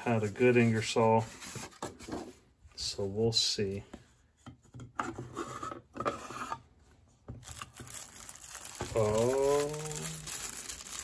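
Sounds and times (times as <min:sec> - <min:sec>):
plastic bag crinkling: 0:07.4 - 0:11.0.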